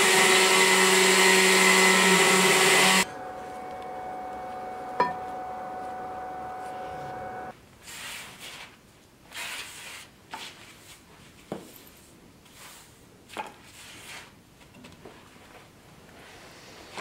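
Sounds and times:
ringing tone: 3.0 - 7.5.

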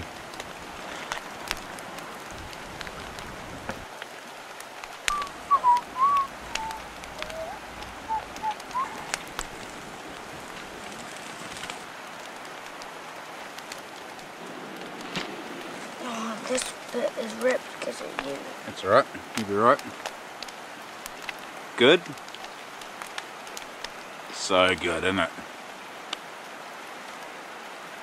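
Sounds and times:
fire crackles and pops: 0.0 - 27.3
campfire hissing: 0.0 - 28.0
whistled notes: 5.1 - 9.3.

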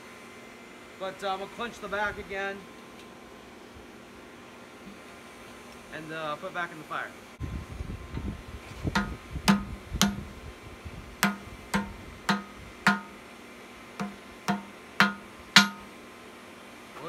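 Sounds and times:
hammer ringing on steel bar: 11.2 - 13.2, 14.0 - 15.9.

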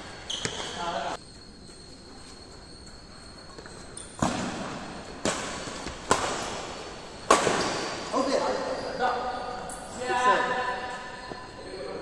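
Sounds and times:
racquet hitting shuttlecock: 4.2 - 8.1.

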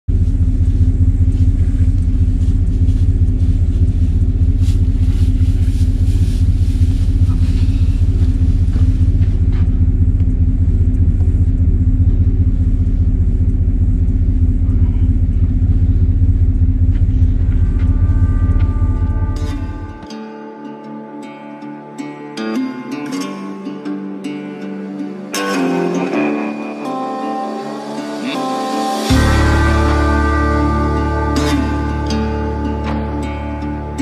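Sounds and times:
truck engine idling: 0.1 - 20.1.

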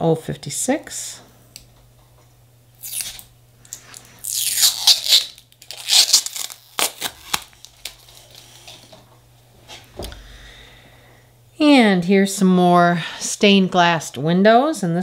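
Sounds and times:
plastic film peeling off metal: 4.2 - 8.9.

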